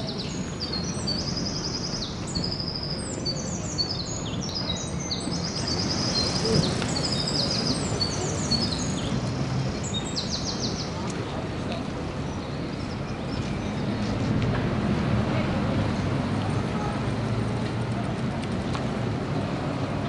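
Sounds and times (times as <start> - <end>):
songbirds singing: 0.0 - 14.5
outdoor background noise: 0.0 - 20.0.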